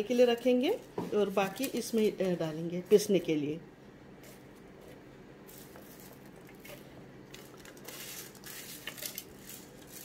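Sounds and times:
small pieces clicking on metal: 7.3 - 10.0
spices scraping on steel plate: 7.7 - 10.0.

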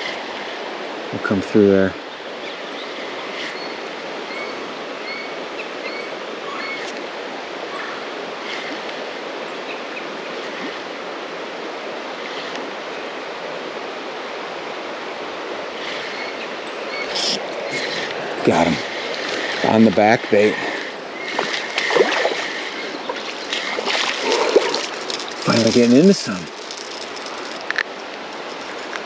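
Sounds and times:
creek water flowing: 0.0 - 29.0.

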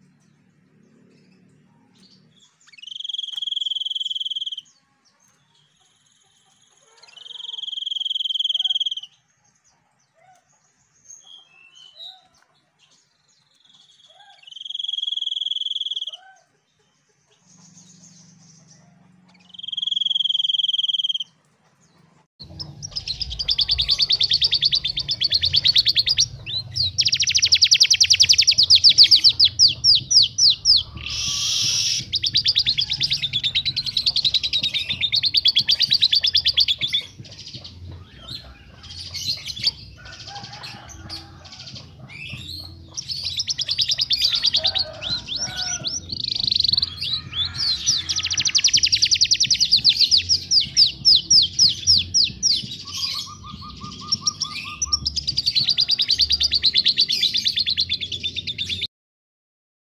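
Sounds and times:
songbirds trilling and chattering: 0.0 - 58.9
low buzzy bird trill: 1.3 - 9.2, 17.4 - 21.4, 22.4 - 42.3.

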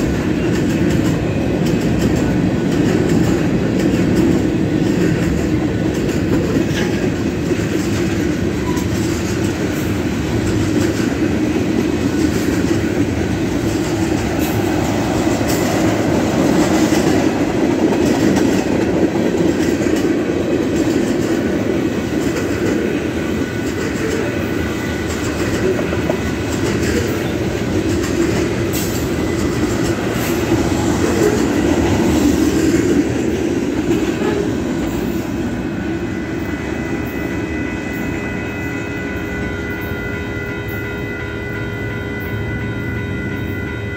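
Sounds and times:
freight train rumbling past: 0.0 - 43.9
high-pitched tones ringing: 36.0 - 43.9.

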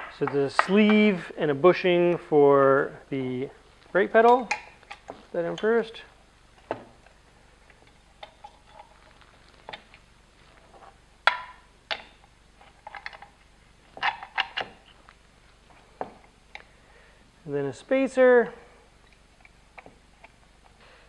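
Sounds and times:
metal parts clinking and knocking: 7.8 - 9.0.

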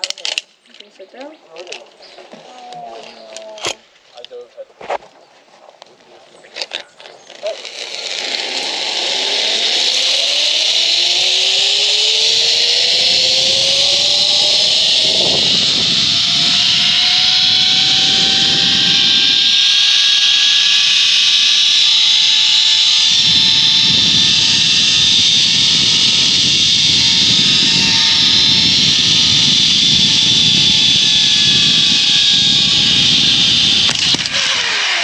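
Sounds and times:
zipline pulleys hissing on cable: 7.3 - 35.0.

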